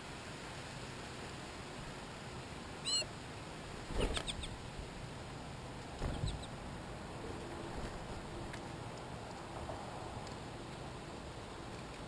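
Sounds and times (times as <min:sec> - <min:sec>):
wings fluttering thumps: 0:03.8 - 0:04.5, 0:06.0 - 0:06.5
songbird chirp: 0:05.7 - 0:08.9.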